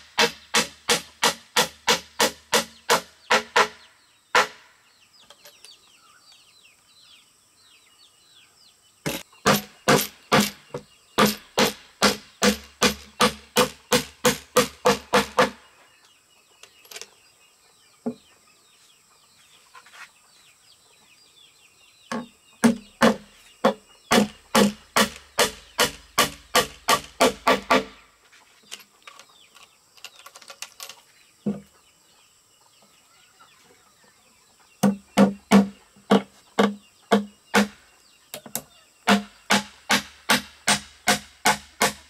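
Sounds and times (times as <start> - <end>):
repeated sharp strikes: 0.0 - 4.6, 9.1 - 15.6, 24.1 - 28.0, 34.8 - 37.8, 39.1 - 42.0
birds chirping: 0.0 - 42.0.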